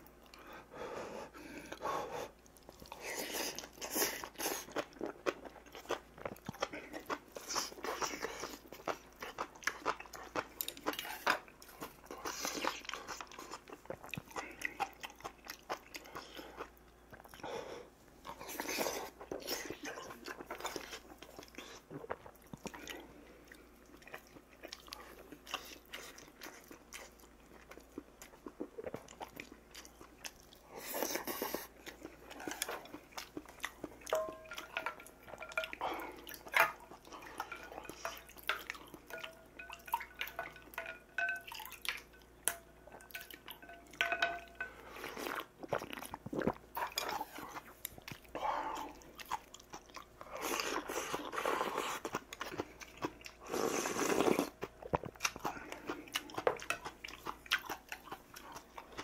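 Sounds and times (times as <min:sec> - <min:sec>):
chewing and slurping: 0:01.5 - 0:17.5, 0:18.2 - 0:59.0
utensils clicking on steel bowls: 0:36.5 - 0:44.8.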